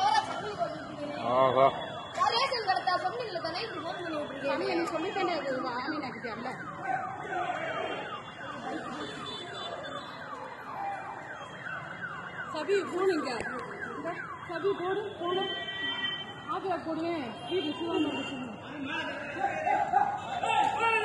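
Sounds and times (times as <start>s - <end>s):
voices calling out: 0.0s - 21.0s
people shouting: 19.2s - 21.0s.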